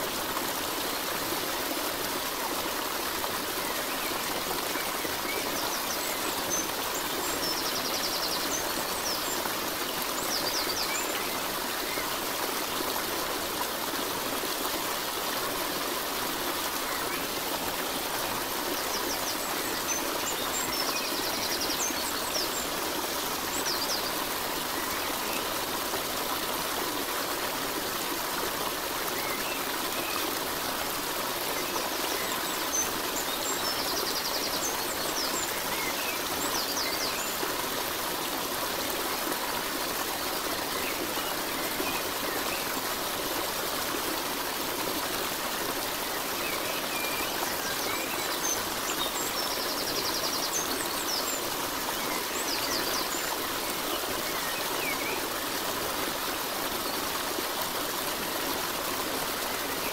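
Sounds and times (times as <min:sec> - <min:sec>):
stream water running: 0:00.0 - 0:59.9.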